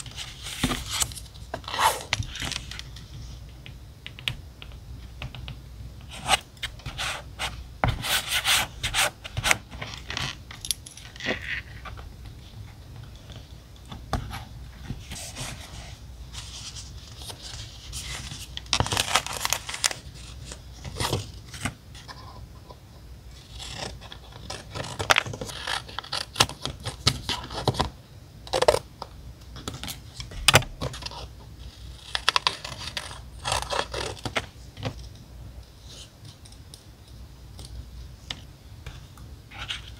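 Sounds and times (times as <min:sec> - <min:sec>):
paper and sticker sheets rustling: 0:14.2 - 0:22.4.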